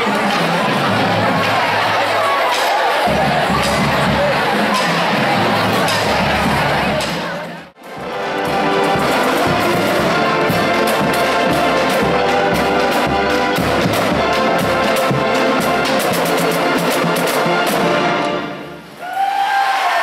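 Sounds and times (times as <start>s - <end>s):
marching drumline: 0.0s - 18.6s
brass section playing tune: 7.8s - 19.0s.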